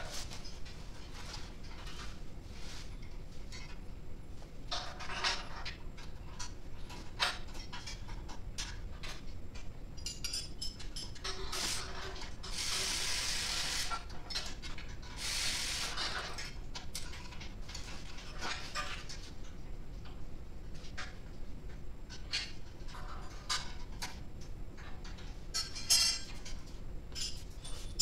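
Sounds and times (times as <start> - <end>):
metal parts and tools clinking: 25.1 - 26.5.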